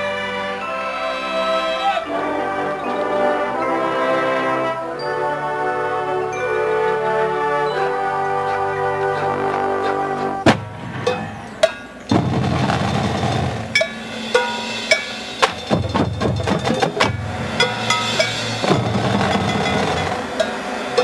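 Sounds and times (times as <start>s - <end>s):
snare drumline: 8.5s - 21.0s
bass drums: 10.4s - 11.5s, 12.1s - 14.6s, 15.3s - 20.5s
sharp percussion hit: 10.4s - 21.0s.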